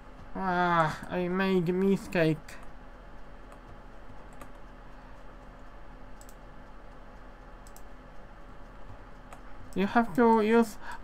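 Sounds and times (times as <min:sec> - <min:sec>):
steady low hum: 0:00.0 - 0:11.0
keyboard and mouse clicks: 0:03.4 - 0:04.8, 0:05.6 - 0:06.5, 0:07.5 - 0:10.5.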